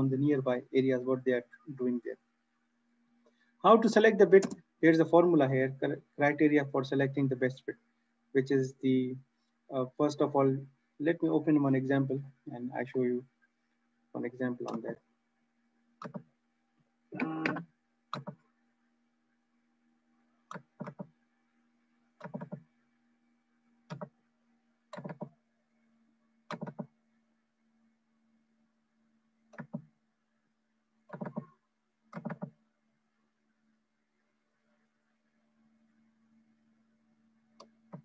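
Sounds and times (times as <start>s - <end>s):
faint electrical hum: 0.0s - 38.0s
computer mouse clicks: 4.4s - 4.6s, 16.0s - 16.3s, 17.4s - 18.4s, 20.5s - 21.1s, 22.2s - 22.7s, 23.9s - 24.2s, 24.9s - 25.4s, 26.5s - 26.9s, 29.5s - 29.9s, 31.1s - 32.6s, 37.5s - 38.0s.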